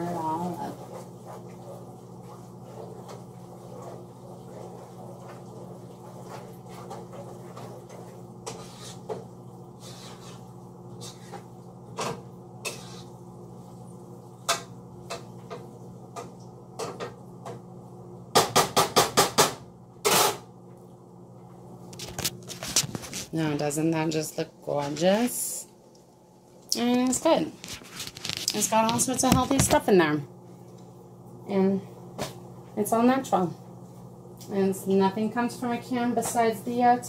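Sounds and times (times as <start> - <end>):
wooden spoon stirring in pot: 0.0 - 13.2, 26.7 - 29.9.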